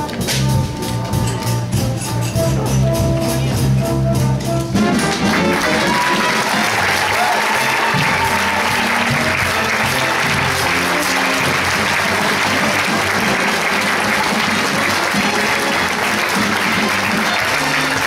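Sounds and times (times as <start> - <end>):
upbeat music: 0.0 - 18.0
audience applauding: 4.9 - 18.0.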